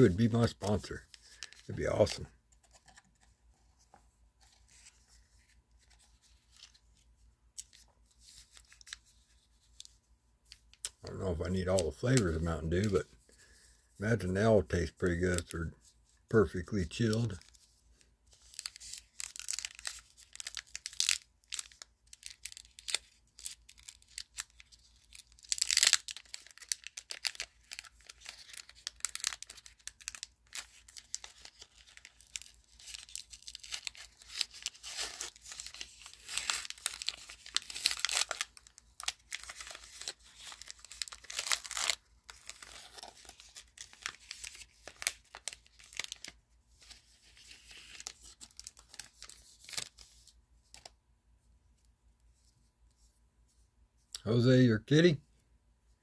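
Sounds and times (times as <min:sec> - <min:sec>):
card pack wrappers tearing and crinkling: 0:00.0 - 0:03.3, 0:07.6 - 0:13.0, 0:14.0 - 0:15.6, 0:16.3 - 0:17.7, 0:18.3 - 0:50.9
cards rustling and flicking: 0:00.0 - 0:13.0, 0:16.4 - 0:50.9.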